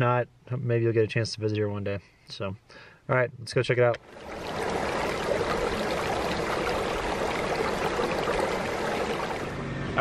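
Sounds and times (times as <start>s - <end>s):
stream trickling over rocks: 4.0s - 9.6s.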